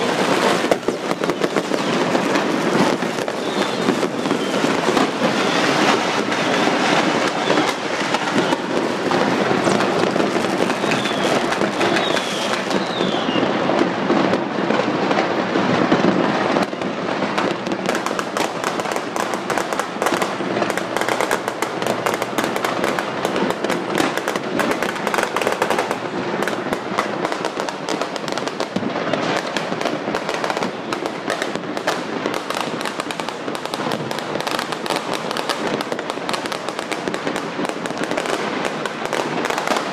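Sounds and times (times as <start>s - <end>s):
falling firework whistles: 0.0s - 14.4s
fireworks bangs and crackle: 0.0s - 39.9s.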